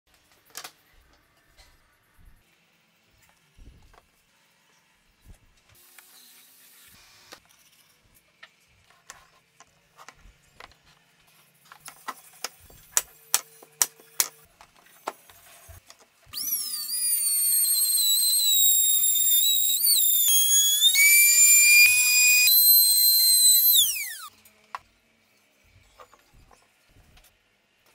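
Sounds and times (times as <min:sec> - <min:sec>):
trim router whining: 0:16.4 - 0:24.3.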